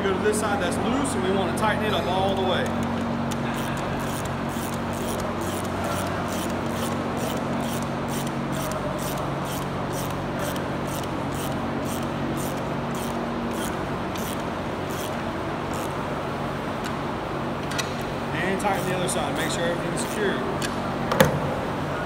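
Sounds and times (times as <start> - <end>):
ratchet wrench clicking: 2.7 - 16.0, 17.7 - 20.3.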